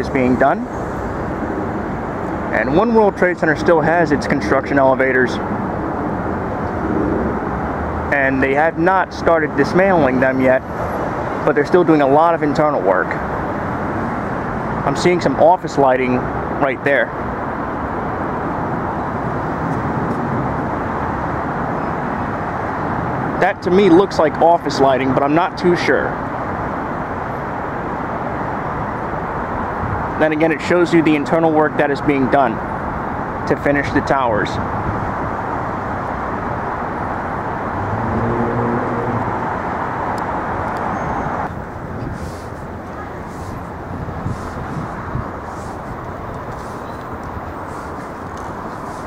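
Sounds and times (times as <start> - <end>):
traffic rumble: 0.0 - 49.0
vehicle engine hum: 34.6 - 49.0.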